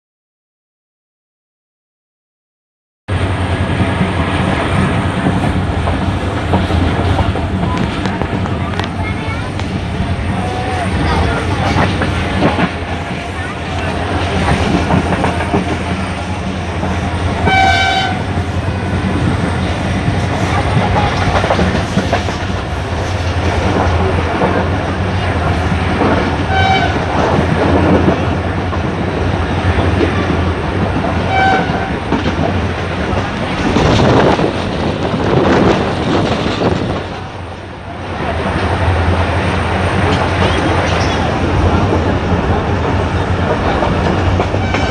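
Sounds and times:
train wheels rumbling and rattling: 3.1s - 44.9s
train horn blasts: 10.3s - 16.7s, 17.3s - 19.4s, 26.4s - 27.2s, 31.2s - 32.0s, 44.5s - 44.9s.

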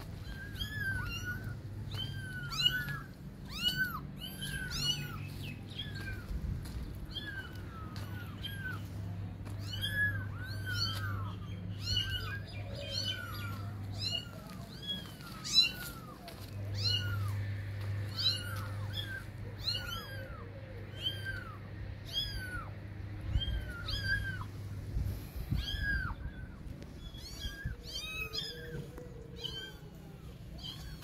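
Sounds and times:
kittens meowing: 0.0s - 31.0s.

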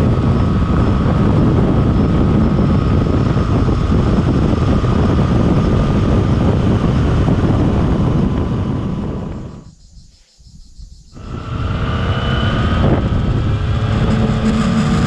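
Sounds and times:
motorcycle engine: 0.0s - 9.7s, 11.2s - 15.0s
wind rush on microphone: 0.0s - 15.0s.

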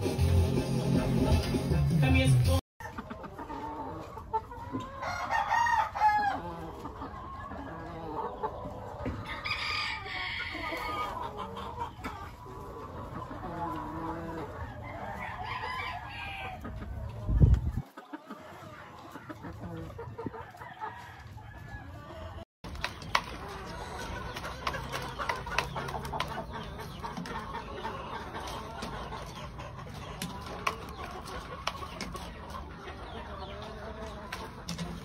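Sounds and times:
chickens clucking: 0.0s - 35.0s
rooster crowing: 5.0s - 6.6s
rooster pecking plastic tub: 22.6s - 26.5s.

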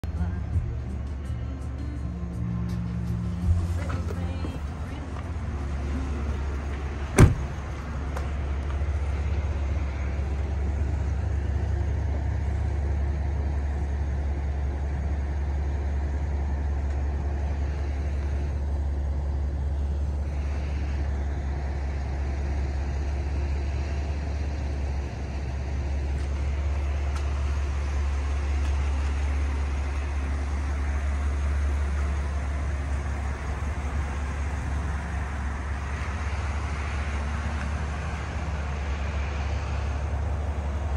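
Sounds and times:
car engine idling: 0.0s - 40.9s
car door shutting: 6.6s - 8.3s.

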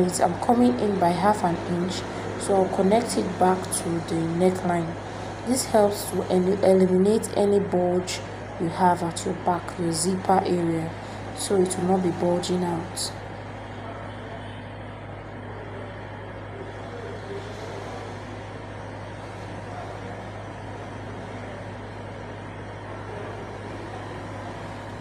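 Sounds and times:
low machine hum: 0.0s - 25.0s.

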